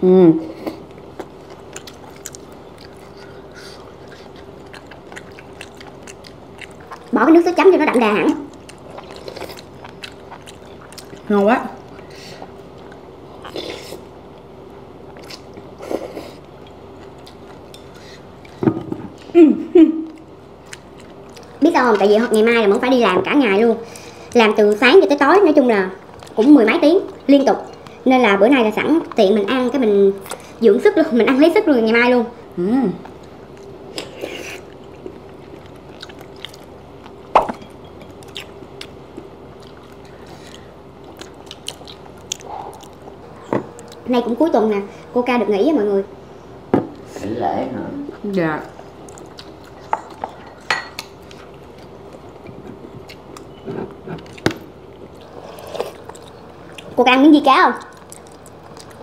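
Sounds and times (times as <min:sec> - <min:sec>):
faint steady hum: 0:00.0 - 0:59.0
quiet chewing: 0:00.6 - 0:07.2, 0:08.3 - 0:19.4, 0:20.0 - 0:22.9, 0:26.0 - 0:28.0, 0:33.0 - 0:44.1, 0:48.7 - 0:57.0, 0:57.7 - 0:59.0.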